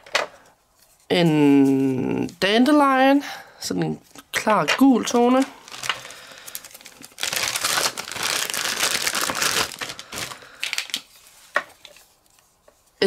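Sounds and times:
plastic bag crinkling: 0:04.9 - 0:12.1.

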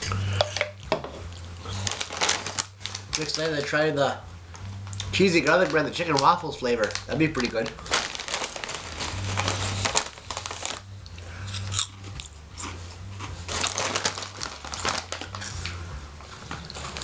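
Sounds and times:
chewing crunchy chips: 0:01.3 - 0:03.8, 0:04.8 - 0:15.8, 0:16.5 - 0:17.0
foil bag crinkling: 0:01.7 - 0:04.0, 0:04.9 - 0:10.9, 0:13.5 - 0:15.8, 0:16.6 - 0:17.0.

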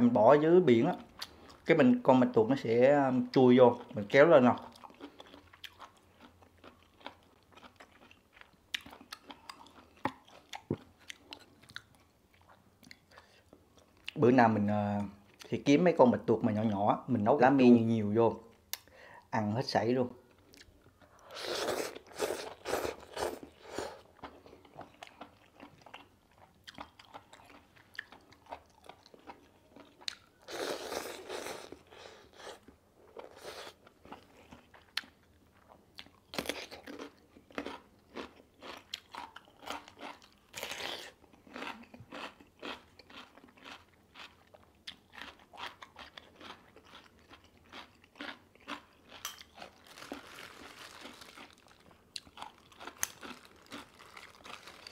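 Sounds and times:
crunchy chewing: 0:20.4 - 0:54.9.

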